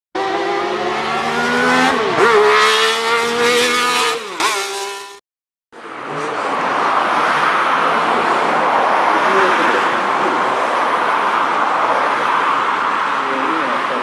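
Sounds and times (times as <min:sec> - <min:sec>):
car engine at high revs: 0:00.2 - 0:05.2
engine and road noise: 0:00.2 - 0:14.0.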